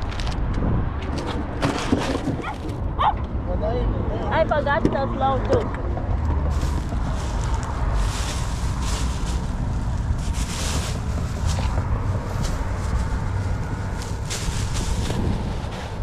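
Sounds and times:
wind buffeting microphone: 0:00.0 - 0:01.6, 0:04.3 - 0:16.0
plastic bags rustling: 0:06.5 - 0:16.0.

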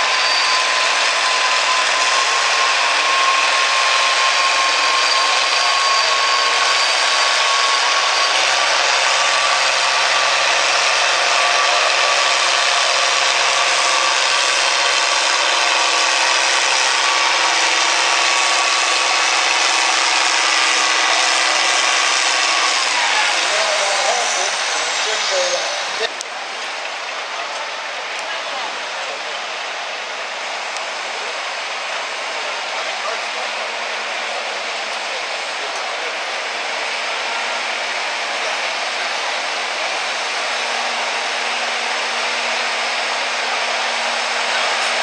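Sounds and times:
thin high whistle: 0:00.0 - 0:08.5
diesel tractor at full throttle: 0:00.0 - 0:45.0.

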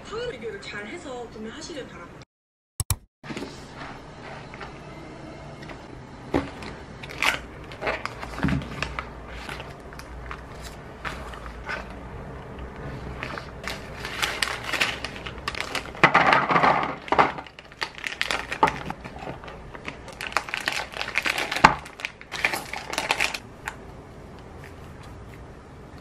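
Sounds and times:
plastic packets crinkling: 0:07.0 - 0:11.9, 0:13.2 - 0:23.4.

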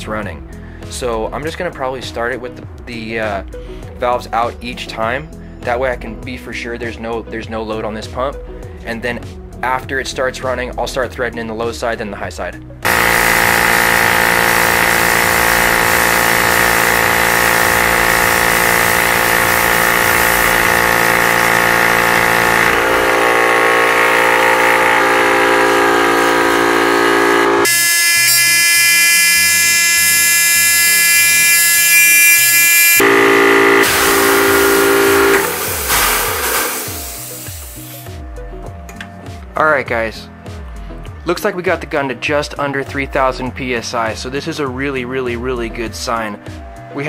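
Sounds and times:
air compressor buzzing hum: 0:12.8 - 0:38.3.

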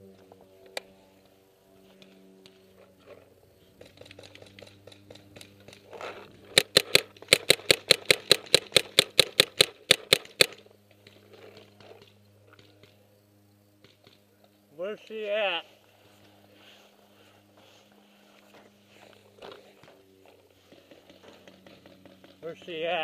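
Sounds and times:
paintball marker firing rapidly: 0:03.8 - 0:10.6.

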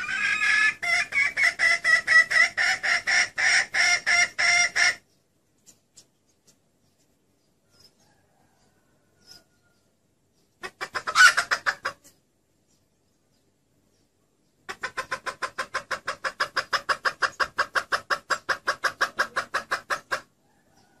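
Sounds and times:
hen squawk: 0:00.0 - 0:05.0, 0:10.6 - 0:12.1, 0:14.7 - 0:20.3
hen clucking: 0:00.0 - 0:12.9, 0:14.0 - 0:21.0.

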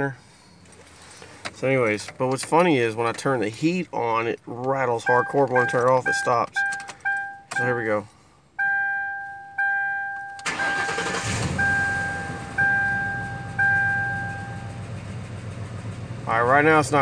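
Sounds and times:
car engine cranking and idling: 0:00.0 - 0:17.0
dashboard warning chime: 0:05.0 - 0:14.8.

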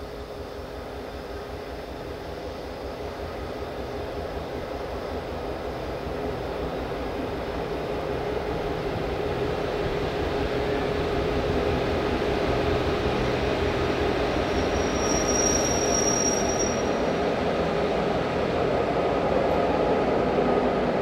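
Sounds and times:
diesel locomotive engine rumbling: 0:00.0 - 0:21.0
high squeal from running gear: 0:14.3 - 0:17.2.

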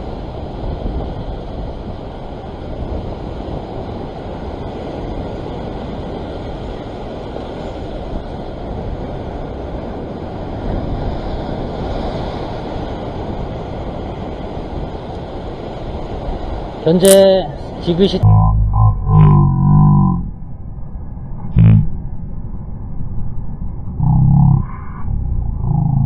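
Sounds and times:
surf washing against rocks: 0:00.0 - 0:18.2
wind buffeting microphone: 0:00.0 - 0:18.2.

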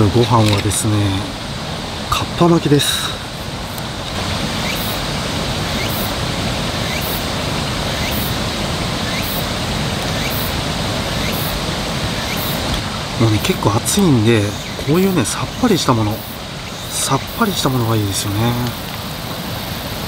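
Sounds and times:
rushing noise: 0:00.0 - 0:20.0.

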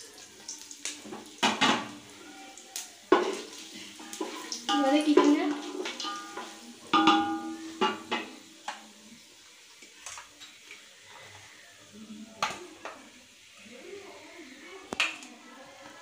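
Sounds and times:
spices sizzling in oil: 0:00.0 - 0:16.0
metal spoon knocking on pot: 0:04.7 - 0:08.4.

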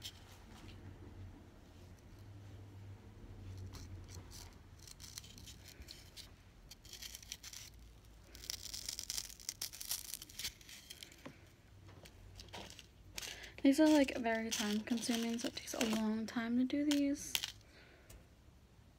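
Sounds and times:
fingers scratching floral foam: 0:12.4 - 0:16.2.

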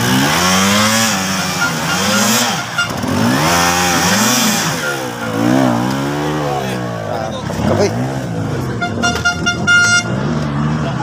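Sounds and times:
dirt bike engine revving: 0:00.0 - 0:11.0.

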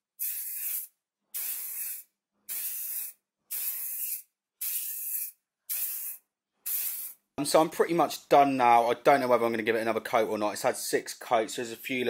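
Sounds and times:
aerosol spray can hissing: 0:00.2 - 0:07.2.

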